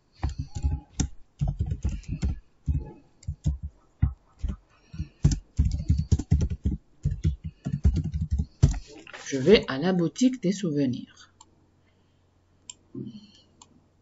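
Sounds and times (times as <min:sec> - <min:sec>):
typing on computer keyboard: 0:00.0 - 0:08.9.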